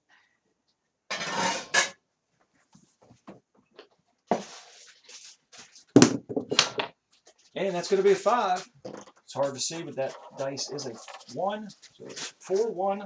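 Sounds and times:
dice tumbling on felt: 5.2 - 7.3.

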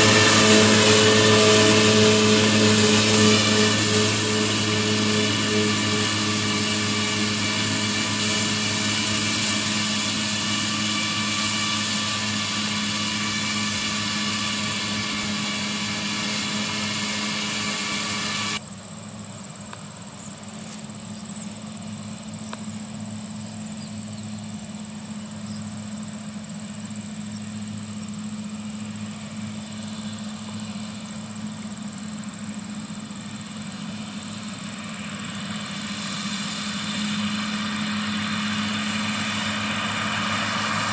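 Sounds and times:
thin high whistle: 0.0 - 18.6
high whining tones: 0.0 - 40.9
tractor engine and mowers droning: 0.0 - 40.9.

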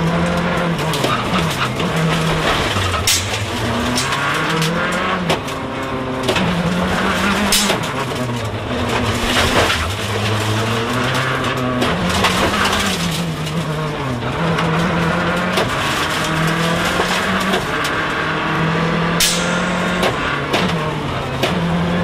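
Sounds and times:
rally car engine revving hard: 0.0 - 22.0
sharp bang: 19.2 - 20.1.

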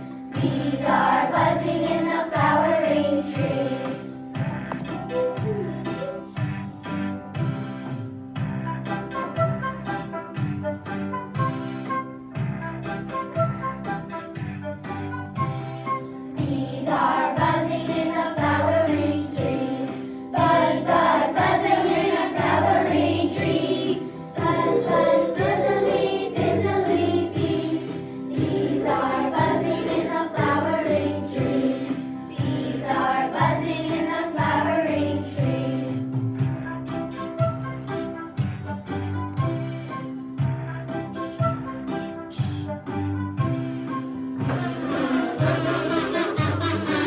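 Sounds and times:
instrumental accompaniment with beat: 0.0 - 47.0
children singing: 0.4 - 4.2, 16.4 - 36.1, 44.4 - 47.0.

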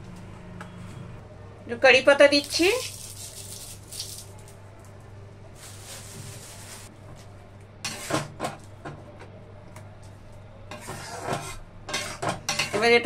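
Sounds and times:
metal ladle scraping a pan: 7.9 - 8.3, 10.7 - 12.9.

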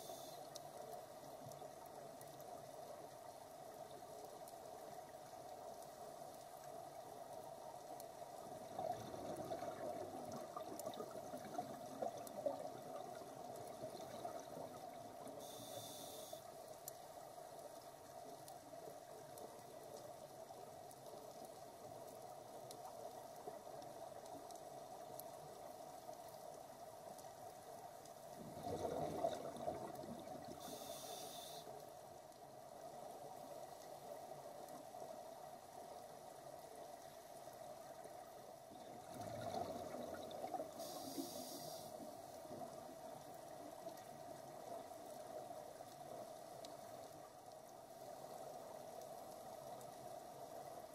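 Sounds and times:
steady underwater hum: 0.0 - 50.9
exhaled bubbles gurgling: 8.5 - 15.6, 28.4 - 31.1, 38.7 - 44.2
regulator breathing underwater: 40.8 - 42.0.

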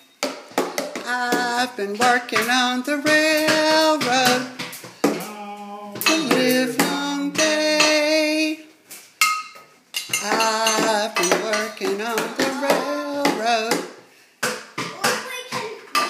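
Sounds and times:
pencil tapping tin cans: 0.2 - 5.3, 6.0 - 8.0, 10.0 - 15.3
person singing: 1.0 - 8.7, 10.2 - 14.0.

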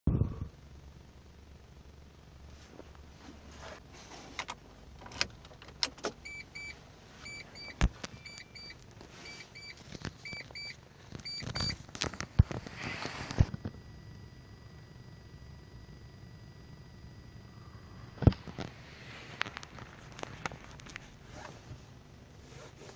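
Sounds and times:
dashboard warning chime beeps: 6.2 - 11.8.

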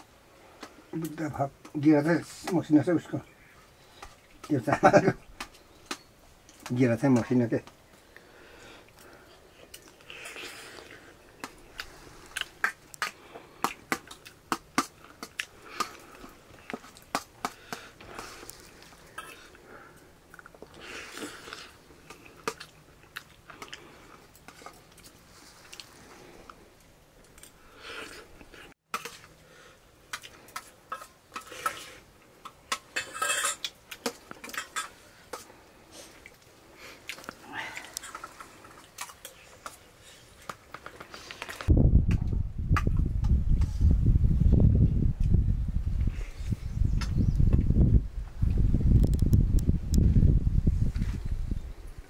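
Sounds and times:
chewing: 8.0 - 29.4, 30.1 - 41.7.

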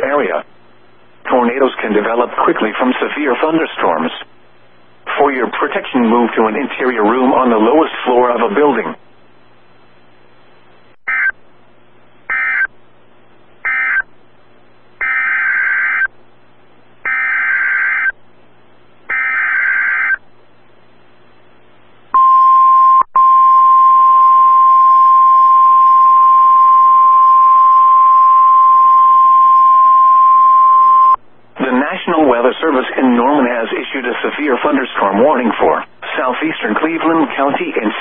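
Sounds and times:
steady warning alarm tone: 12.3 - 12.7, 13.6 - 14.1, 15.0 - 16.1, 17.1 - 18.2, 19.1 - 20.2, 22.2 - 31.2.

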